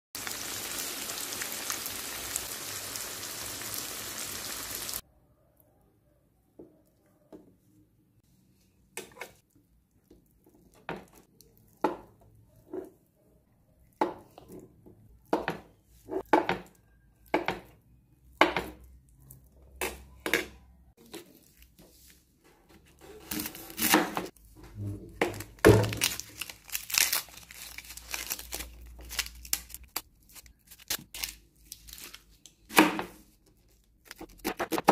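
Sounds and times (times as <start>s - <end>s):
oil sizzling in a frying pan: 0.2s - 5.0s
onion skin crinkling and tearing: 25.3s - 32.7s, 33.5s - 34.9s.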